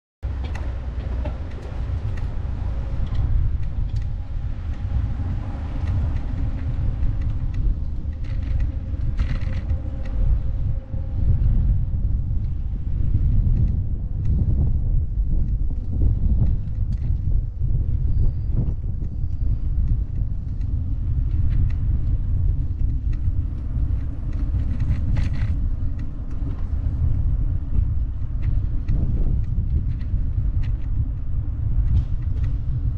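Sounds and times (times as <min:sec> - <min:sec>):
wind buffeting microphone: 0:00.2 - 0:32.9
light clicks and rattles: 0:00.3 - 0:10.2, 0:19.0 - 0:32.9.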